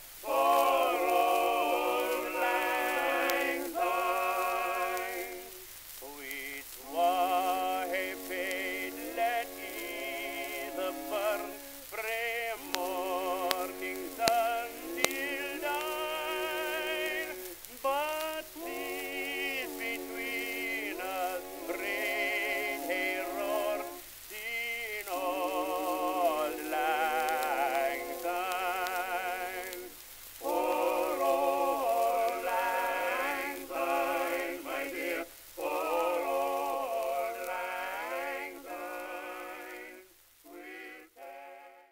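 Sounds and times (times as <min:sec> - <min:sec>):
singing voice with heavy vibrato: 0:00.0 - 0:41.9.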